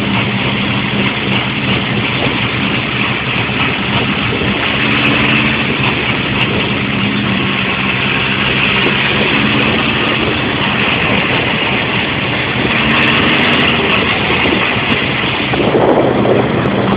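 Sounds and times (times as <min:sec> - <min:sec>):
motorcycle engine running: 0:00.0 - 0:16.9
wind and road noise: 0:00.0 - 0:16.9.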